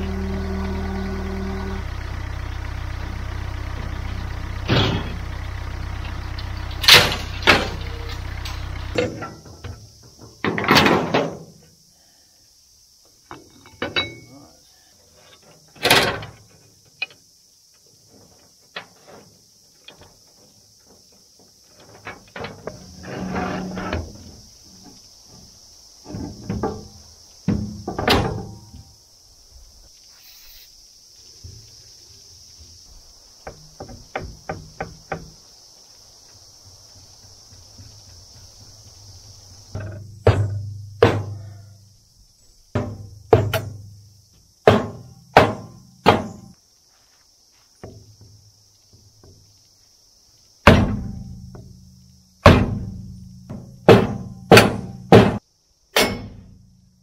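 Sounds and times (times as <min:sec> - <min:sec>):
tractor engine running: 0:00.0 - 0:10.0
mower deck clanking and scraping: 0:01.9 - 0:11.6, 0:13.3 - 0:14.3, 0:15.2 - 0:17.2, 0:18.0 - 0:28.8, 0:33.4 - 0:35.4, 0:39.6 - 0:41.5, 0:42.8 - 0:44.0, 0:44.6 - 0:46.6, 0:50.6 - 0:51.7, 0:52.4 - 0:55.4
metal clanks and knocks: 0:03.8 - 0:11.6, 0:13.3 - 0:14.5, 0:15.3 - 0:17.2, 0:18.2 - 0:28.8, 0:33.4 - 0:35.4, 0:39.7 - 0:41.6, 0:42.7 - 0:44.0, 0:44.6 - 0:46.6, 0:50.6 - 0:51.7, 0:52.4 - 0:56.7.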